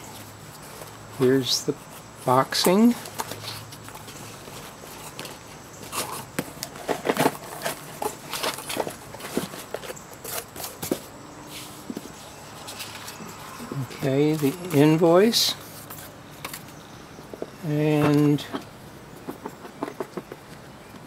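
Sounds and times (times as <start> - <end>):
cardboard box rustling: 2.8 - 14.9.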